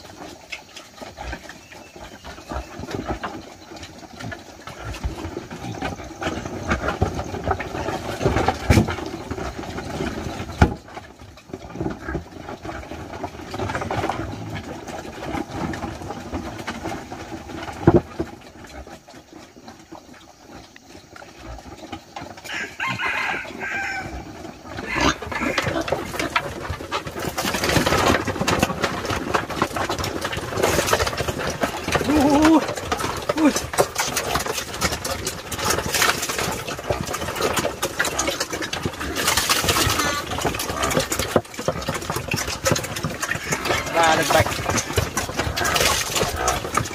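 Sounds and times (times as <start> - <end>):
chickens clucking: 0.0 - 46.9
rooster crowing: 22.4 - 25.8.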